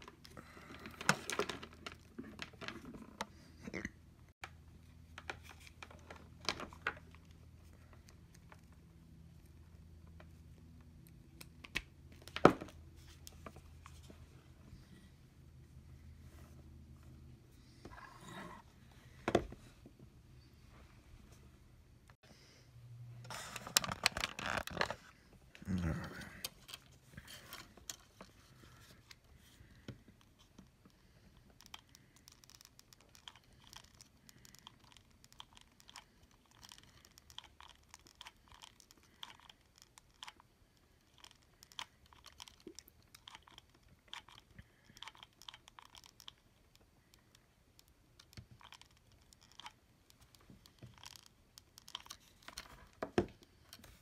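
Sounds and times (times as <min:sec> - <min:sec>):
small clicks and ticks: 0:29.1 - 0:53.9.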